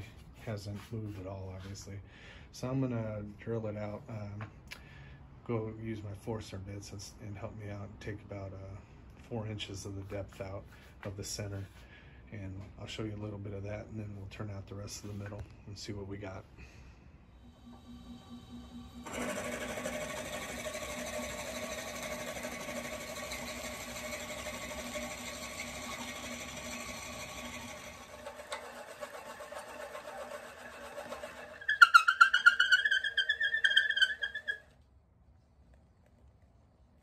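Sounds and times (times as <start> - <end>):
drill bit boring into wood: 17.4 - 34.6
wood lathe running: 17.4 - 34.6
pulsing squeak of bit rubbing: 17.4 - 34.7.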